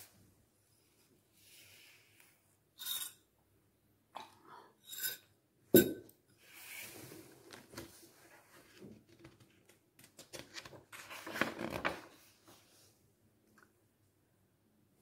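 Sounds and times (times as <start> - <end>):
paper rustling: 7.4 - 12.7.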